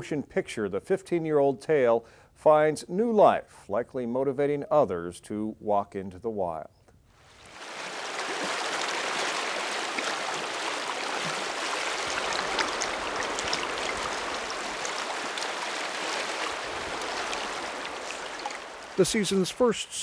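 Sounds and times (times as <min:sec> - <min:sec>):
river water rushing: 0:07.4 - 0:20.0.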